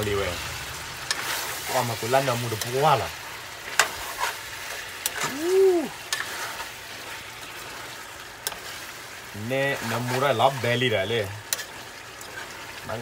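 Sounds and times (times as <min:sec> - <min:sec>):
food sizzling in a pan: 0:00.0 - 0:13.0
utensil clicking against pan: 0:11.5 - 0:12.4.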